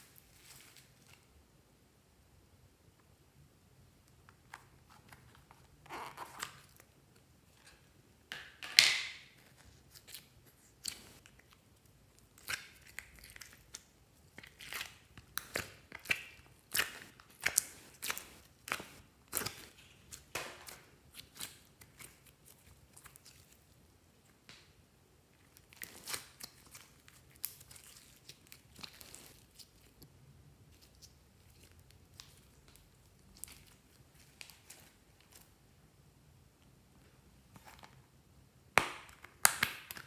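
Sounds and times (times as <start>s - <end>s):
slime crackling and popping: 12.2s - 23.7s, 25.5s - 30.0s, 38.7s - 40.0s.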